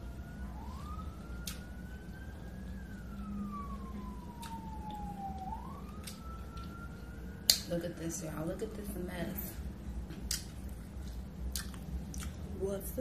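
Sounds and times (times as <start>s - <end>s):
siren wailing: 0.0s - 9.8s
low steady hum: 0.0s - 13.0s.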